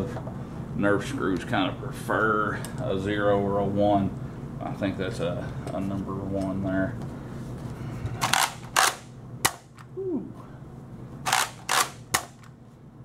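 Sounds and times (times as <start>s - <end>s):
toy blaster pump clacking: 8.2s - 9.0s, 11.3s - 12.5s.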